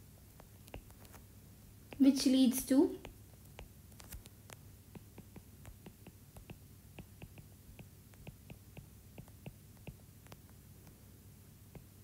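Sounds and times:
stylus tapping on screen: 0.3s - 1.2s, 3.0s - 10.9s, 11.7s - 12.0s.

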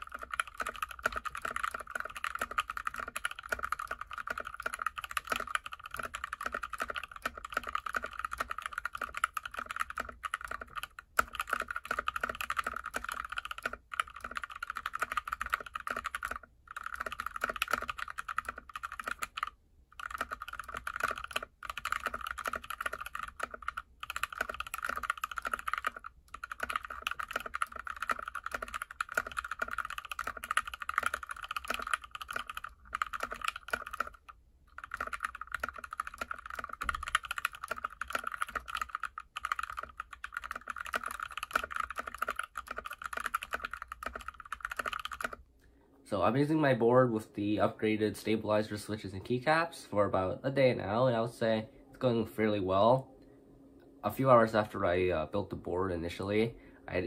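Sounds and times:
fast typing on mechanical keyboard: 0.0s - 45.4s.

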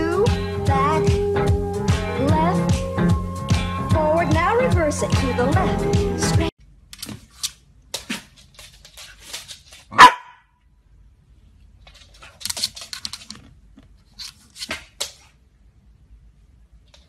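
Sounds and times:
faint clicks and scuffles: 6.9s - 10.0s, 11.6s - 15.4s, 16.7s - 17.0s
dog barking sharply: 9.9s - 10.5s.

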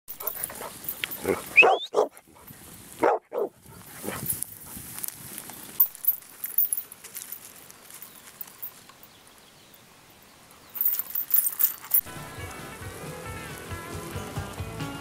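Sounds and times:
sheep hooves pattering and clicking: 0.1s - 3.0s, 3.6s - 9.4s
music: 12.0s - 15.0s.

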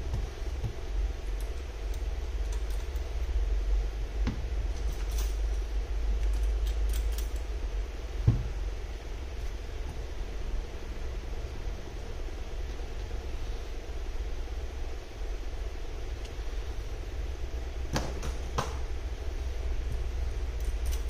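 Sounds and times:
low background hum: 0.0s - 21.0s
knock on work mat: 8.3s - 8.5s.

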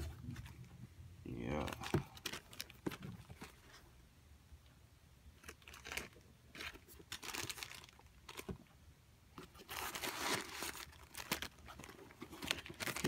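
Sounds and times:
paper crinkling and rustling: 9.4s - 13.0s.

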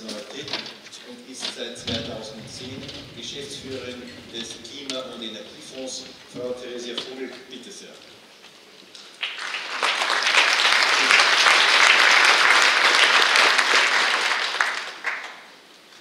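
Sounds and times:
audience applauding: 9.2s - 15.4s.

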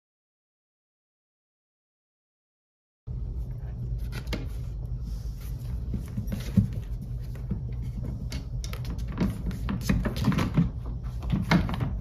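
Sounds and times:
steady low hum: 3.1s - 12.0s.

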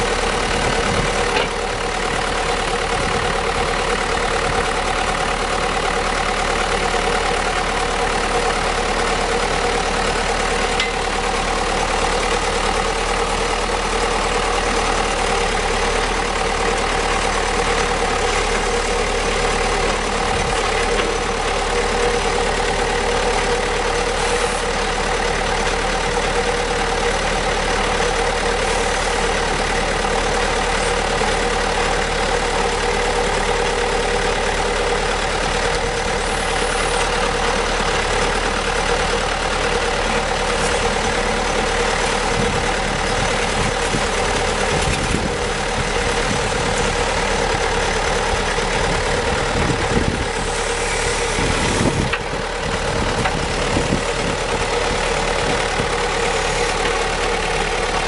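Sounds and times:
hydraulics working: 0.0s - 58.0s
trencher engine running: 0.0s - 58.0s.

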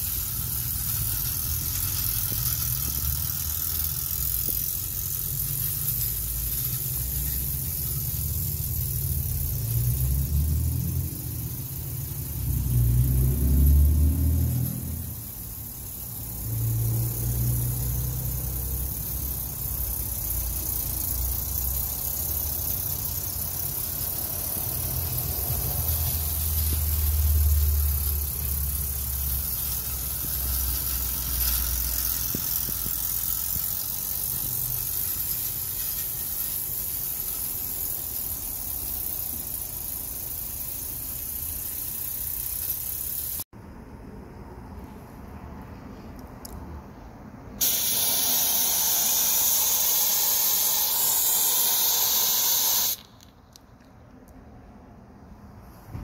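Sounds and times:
steam locomotive hissing: 47.6s - 53.1s.

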